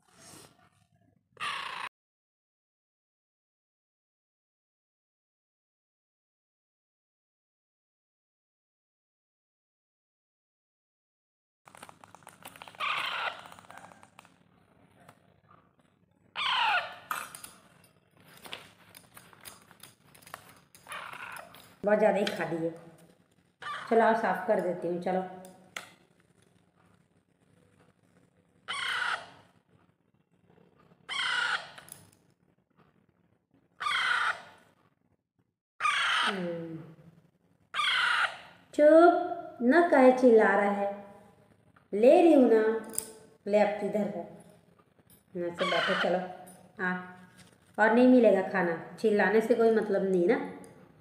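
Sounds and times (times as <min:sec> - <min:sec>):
parakeet chicks begging squawks: 0:01.4 - 0:01.9, 0:12.7 - 0:13.8, 0:16.4 - 0:17.2, 0:20.9 - 0:21.5, 0:23.6 - 0:24.0, 0:28.7 - 0:29.4, 0:31.1 - 0:31.8, 0:33.8 - 0:34.6, 0:35.8 - 0:36.4, 0:37.8 - 0:38.6, 0:45.6 - 0:46.2.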